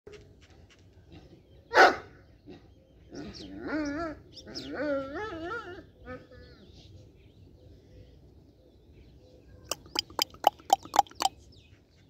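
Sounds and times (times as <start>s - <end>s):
dog barking: 1.7s - 2.1s.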